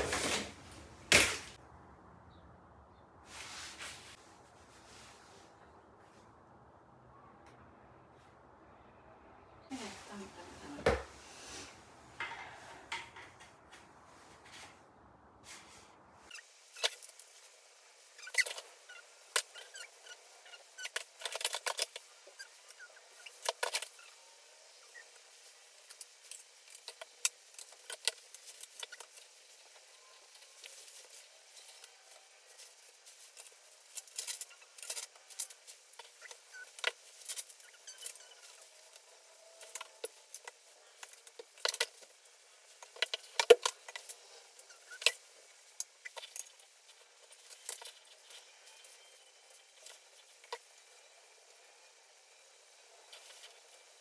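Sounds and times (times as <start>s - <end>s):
rustling: 3.2s - 6.4s, 13.3s - 50.9s.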